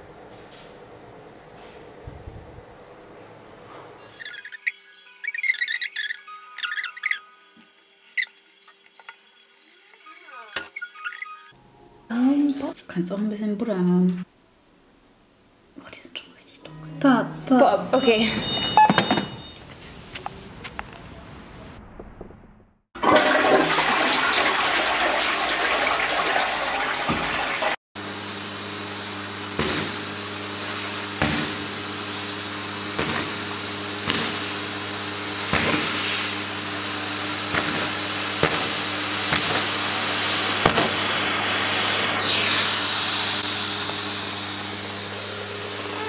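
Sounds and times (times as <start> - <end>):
electrical hum: 0.0 - 21.8.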